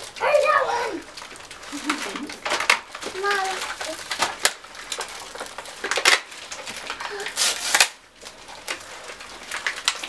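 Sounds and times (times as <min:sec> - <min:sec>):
wrapping paper rustling and tearing: 0:00.0 - 0:10.0.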